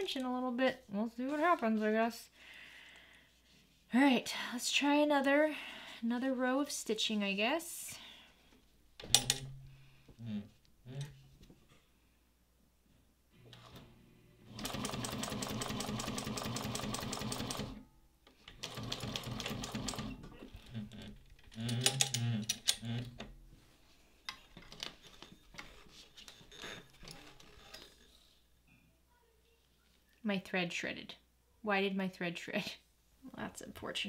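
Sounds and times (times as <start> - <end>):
sewing machine stitching leather: 14.5 - 17.8, 18.5 - 22.2.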